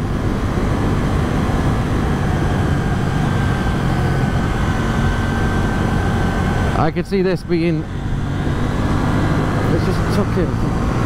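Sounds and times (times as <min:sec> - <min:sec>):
wind noise: 0:00.0 - 0:06.8, 0:07.8 - 0:11.0
motorcycle engine running: 0:00.0 - 0:11.0.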